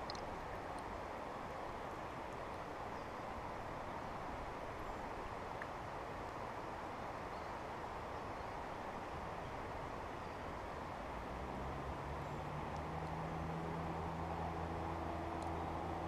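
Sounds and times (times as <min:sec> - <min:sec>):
creek water flowing over rocks: 0:00.0 - 0:16.0.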